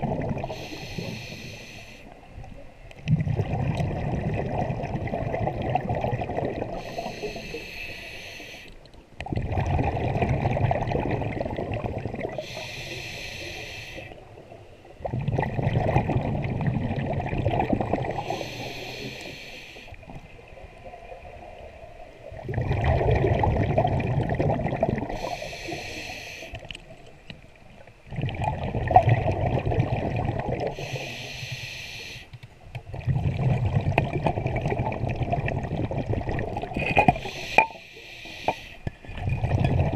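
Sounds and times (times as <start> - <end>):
bubbling exhaled air rush: 0.0 - 1.8, 3.1 - 8.6, 9.2 - 14.2, 15.0 - 20.0, 22.4 - 26.5, 28.1 - 32.1, 32.9 - 39.9
regulator inhalation hiss: 0.5 - 2.2, 6.8 - 8.8, 12.4 - 14.2, 18.2 - 20.0, 25.1 - 26.6, 30.7 - 32.4, 37.2 - 38.9.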